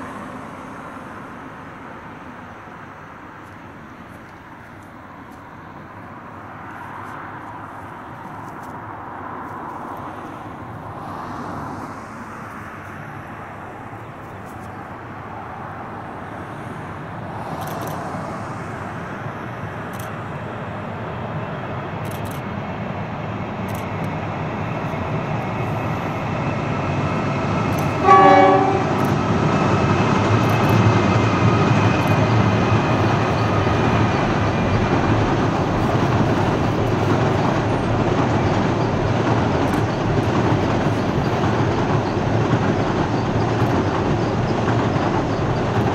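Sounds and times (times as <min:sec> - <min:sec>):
carriages passing: 0:00.0 - 0:45.9
diesel locomotive engines: 0:00.0 - 0:45.9
train horn toot: 0:27.8 - 0:29.2.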